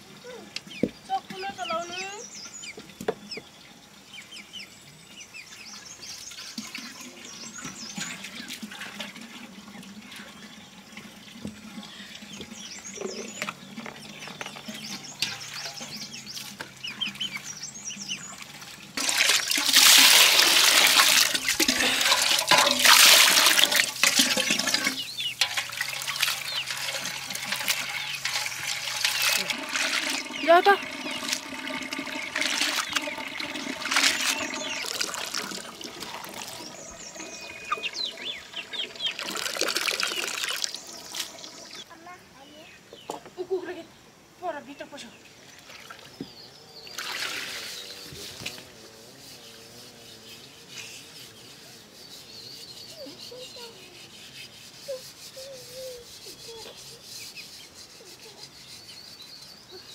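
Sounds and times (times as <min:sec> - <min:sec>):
water pouring and splashing: 0:05.5 - 0:41.9, 0:45.4 - 0:48.7
faint bird chirps: 0:36.5 - 0:39.3, 0:49.2 - 0:59.9.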